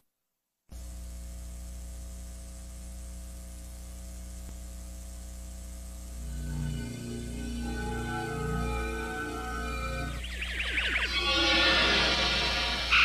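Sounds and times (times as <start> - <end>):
electrical mains hum: 0.7 - 13.0
tape hiss: 0.7 - 13.0
music: 6.2 - 13.0.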